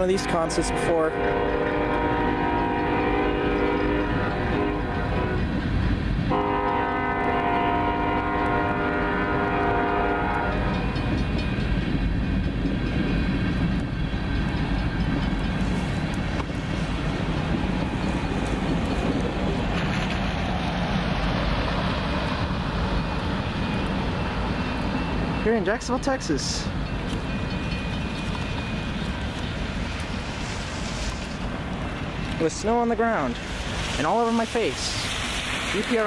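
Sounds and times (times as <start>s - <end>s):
train wheels rumbling on rails: 0.0s - 36.0s
locomotive horn chord: 0.2s - 5.4s, 6.3s - 10.8s.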